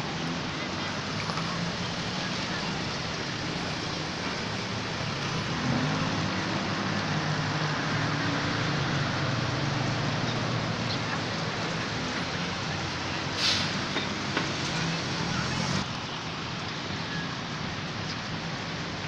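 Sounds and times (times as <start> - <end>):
passing cars and motorbikes: 0.0 - 19.0
vehicle engine humming: 0.0 - 19.0
sharp hiss: 13.3 - 14.0.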